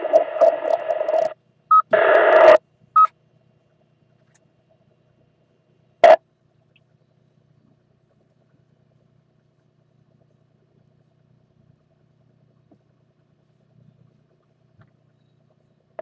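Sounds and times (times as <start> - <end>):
radio static burst: 0.0 - 2.6
faint low hum: 0.0 - 16.0.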